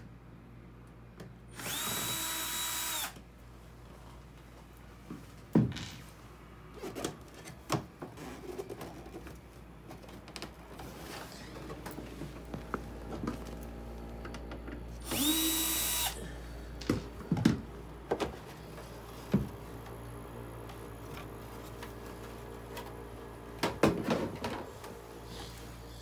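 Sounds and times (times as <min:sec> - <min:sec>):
power screwdriver whine: 0:01.6 - 0:03.2, 0:15.0 - 0:16.2
steady low hum: 0:08.2 - 0:26.0.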